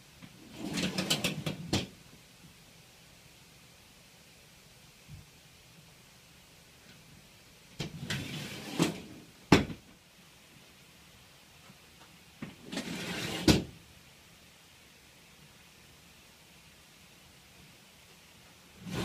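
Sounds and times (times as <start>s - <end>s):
metal sliding rattle: 0.5s - 1.8s.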